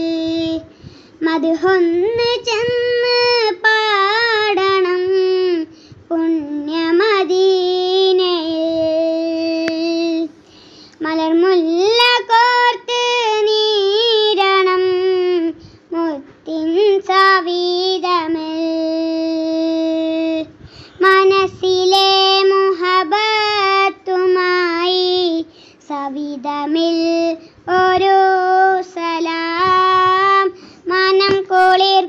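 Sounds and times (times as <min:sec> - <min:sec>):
boy singing solo: 0:00.0 - 0:10.4.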